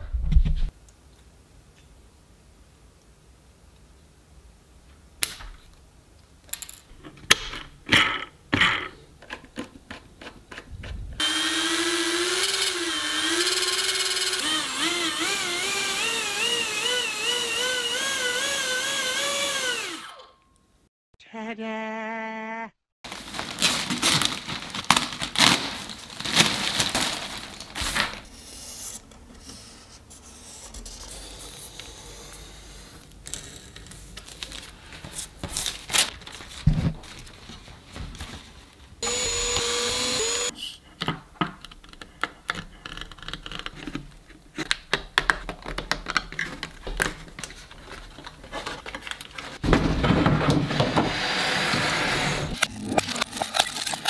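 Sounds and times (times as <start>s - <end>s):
plastic crinkling: 23.1s - 28.3s.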